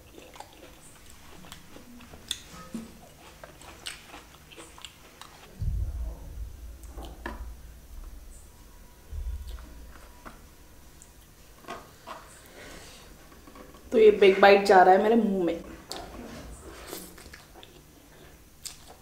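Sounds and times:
chewing and mouth sounds: 0.0s - 5.6s, 16.8s - 19.0s
low rumble: 5.5s - 10.8s.

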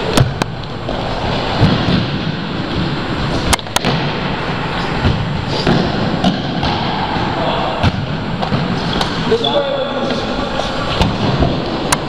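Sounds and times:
ball thudding: 3.5s - 9.2s.

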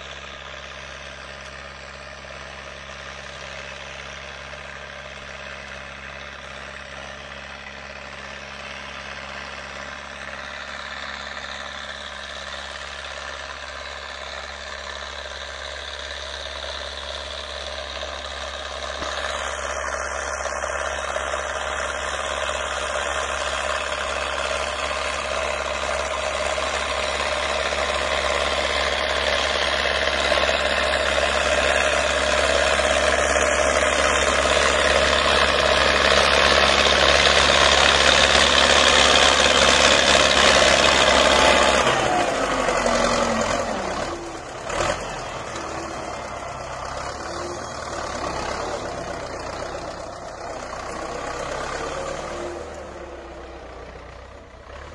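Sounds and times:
tractor diesel engine under load: 0.0s - 54.9s.

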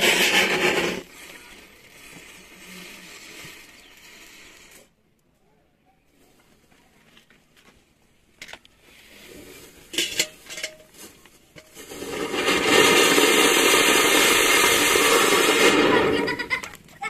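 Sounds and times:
firework fountain hissing: 0.0s - 4.9s, 11.8s - 17.0s
firework pops and crackles: 11.1s - 17.0s.

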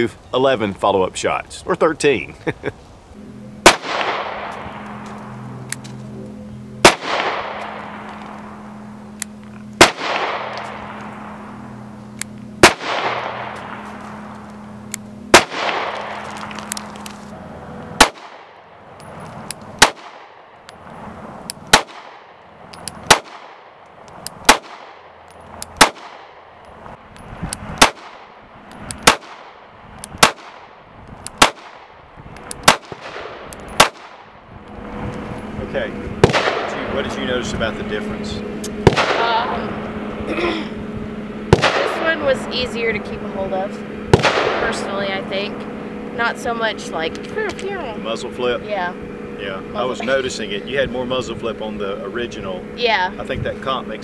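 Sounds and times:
pistol shots echoing: 3.6s - 5.0s, 6.8s - 8.4s, 9.8s - 11.3s, 12.6s - 13.8s, 15.3s - 16.6s, 18.0s - 18.6s, 19.8s - 20.5s, 21.7s - 22.3s, 23.0s - 23.8s, 24.4s - 25.1s, 25.8s - 26.4s, 27.8s - 28.4s, 29.0s - 29.6s, 30.2s - 30.8s, 31.4s - 31.9s, 32.6s - 34.3s, 36.2s - 36.8s, 38.8s - 39.3s, 44.1s - 44.7s.

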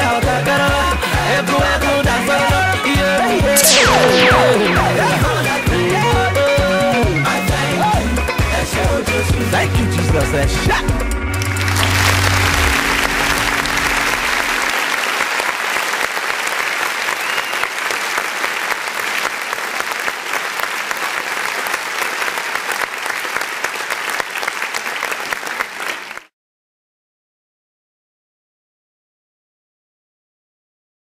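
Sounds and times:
music track: 3.3s - 6.6s, 11.4s - 14.6s
crowd applauding: 11.4s - 26.3s.

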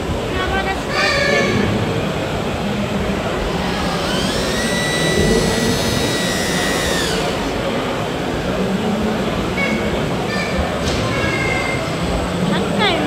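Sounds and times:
hall and crowd noise: 0.0s - 13.0s
electric motor whine: 3.3s - 7.7s.

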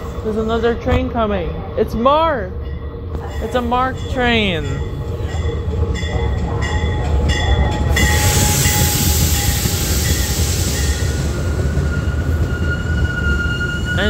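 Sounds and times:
train wheels rumbling on rail: 2.5s - 14.0s
high brake squeal: 8.0s - 14.0s.

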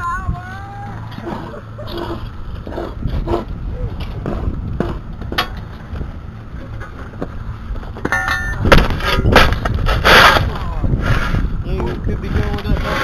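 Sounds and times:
wind rumble on microphone: 0.0s - 13.0s
rake scraping gravelly dirt: 8.6s - 13.0s.

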